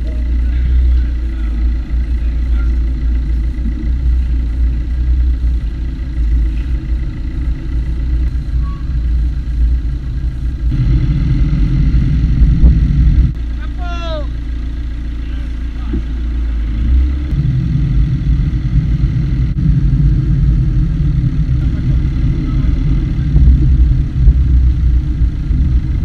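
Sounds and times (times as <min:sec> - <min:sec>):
road noise: 0:00.0 - 0:26.0
wind on microphone: 0:08.4 - 0:13.4, 0:17.3 - 0:26.0.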